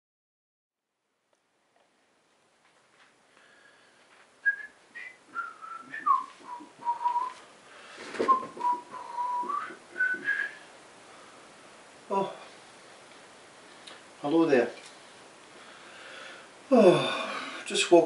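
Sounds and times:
man whistling a tune: 4.4 - 7.4, 8.3 - 10.6.

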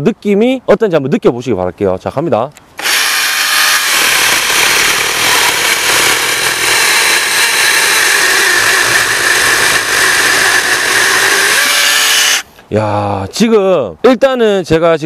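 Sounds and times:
chainsaw cutting log: 2.8 - 12.5.

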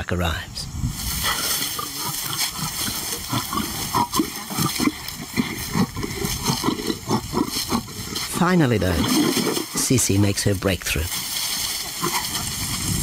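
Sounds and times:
lion growling: 1.2 - 10.0, 11.1 - 12.7.

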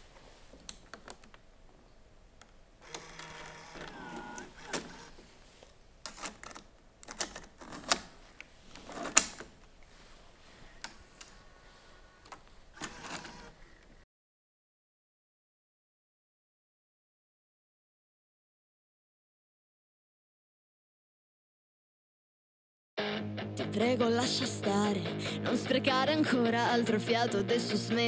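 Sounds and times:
small motor whirring: 2.8 - 5.2.

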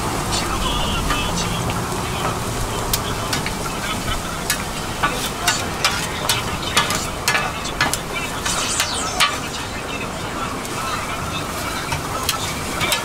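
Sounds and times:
food sizzling on a griddle: 0.2 - 10.0, 10.6 - 13.0
metal spatulas clacking and scraping: 4.4 - 9.6, 11.9 - 13.0.

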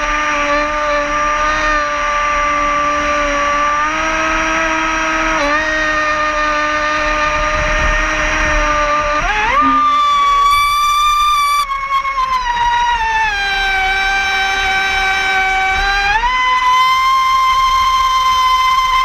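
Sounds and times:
model boat motor whining: 0.0 - 19.0
water noise: 0.0 - 19.0.

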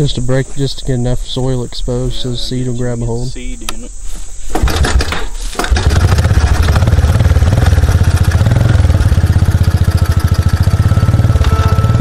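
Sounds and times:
recoil starter pull: 4.6 - 10.6
four-wheeler engine idling: 5.6 - 12.0.

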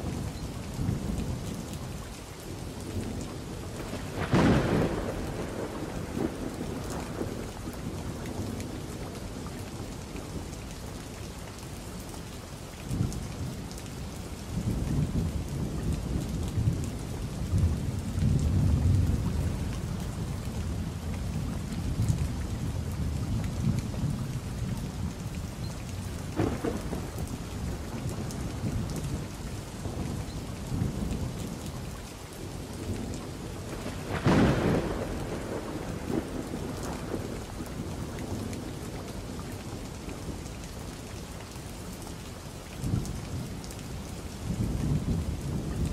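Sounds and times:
steady rain: 0.0 - 45.9
rolling thunder rumble: 3.8 - 8.7, 26.3 - 31.6, 32.8 - 40.4
sharp thunder cracks: 4.0 - 7.4, 26.4 - 27.8, 33.7 - 37.9.

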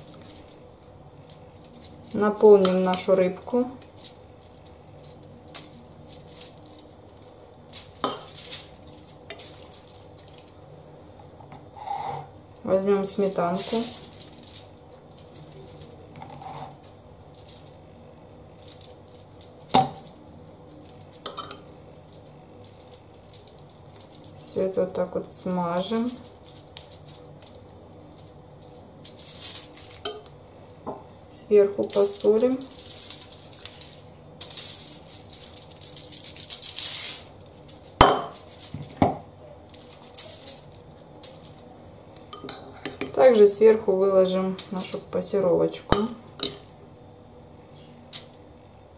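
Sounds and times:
foil crinkling and rustling: 0.0 - 10.6, 13.0 - 17.8, 18.5 - 21.3, 21.9 - 30.1, 31.8 - 39.0, 39.7 - 41.7.

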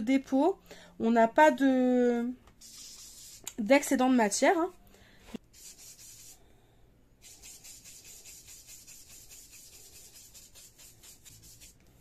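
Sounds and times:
foam tool rubbing on card: 2.6 - 3.5, 5.5 - 6.4, 7.2 - 11.8.

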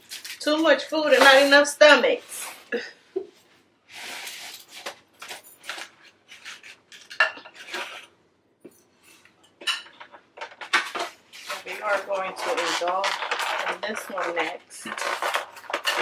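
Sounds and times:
foam containers rustling: 0.0 - 2.9, 3.9 - 8.2, 10.0 - 16.0.

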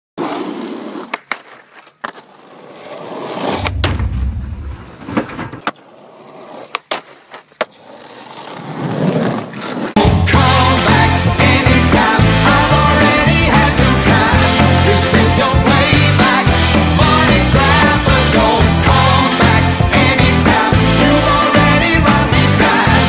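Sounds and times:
skateboard wheels rolling on asphalt: 0.2 - 3.8, 4.9 - 10.1
skateboard grinding along ledge: 0.2 - 3.9, 4.9 - 10.1
skateboard pops and clacks: 1.0 - 2.3, 5.0 - 5.9, 6.6 - 8.5
music with a beat: 10.0 - 23.0.

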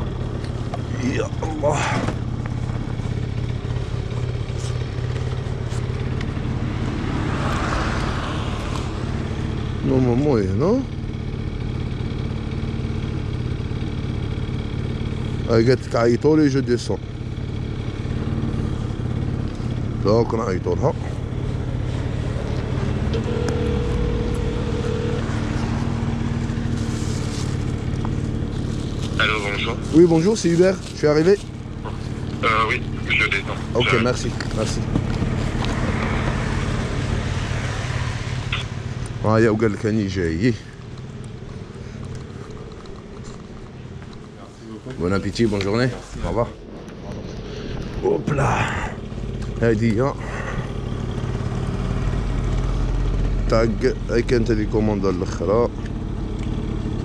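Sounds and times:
motor scooter engine idling: 0.0 - 46.6, 47.3 - 57.0
car driving past: 6.4 - 9.6, 29.5 - 54.4
phone ringback tone: 23.1 - 26.4.

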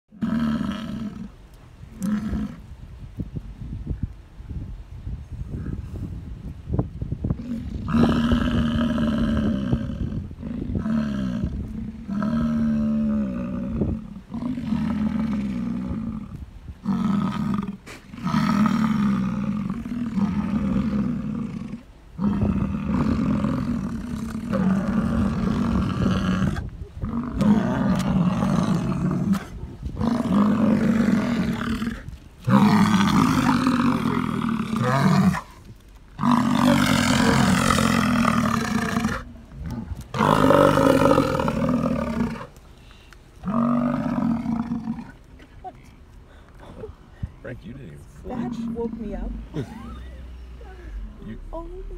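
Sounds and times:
bison bellowing: 7.6 - 35.5, 36.2 - 42.6.

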